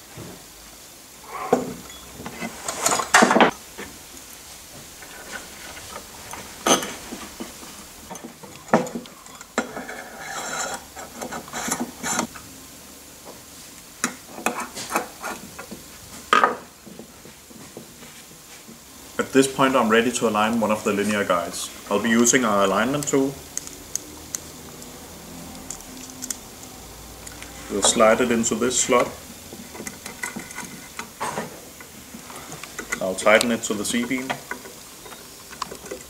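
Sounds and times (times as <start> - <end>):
metal parts scraping on wood: 2.3 - 3.5, 5.0 - 12.3, 27.6 - 36.0
metal parts clicking and knocking: 32.5 - 36.0.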